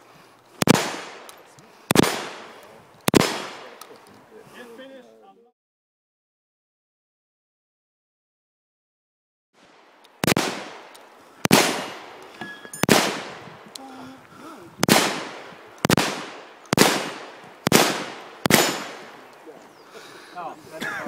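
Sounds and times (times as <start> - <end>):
gunshots with ringing echo: 0.6 - 3.8, 10.2 - 13.6, 14.8 - 19.3.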